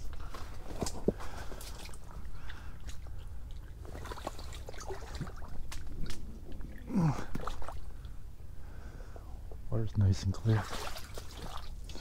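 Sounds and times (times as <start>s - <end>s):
water sloshing and splashing: 0.2s - 8.3s, 10.3s - 12.0s
clicks and crackles: 5.6s - 7.4s.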